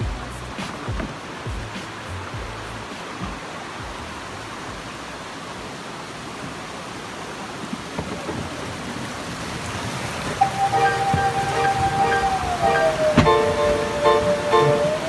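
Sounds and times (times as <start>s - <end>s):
river rushing over rocks: 0.0s - 15.0s
low knocks: 10.4s - 15.0s
music with held tone: 10.4s - 15.0s.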